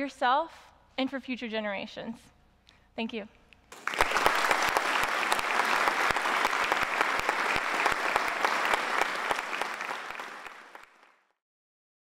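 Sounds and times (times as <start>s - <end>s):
audience applauding: 3.7s - 11.3s.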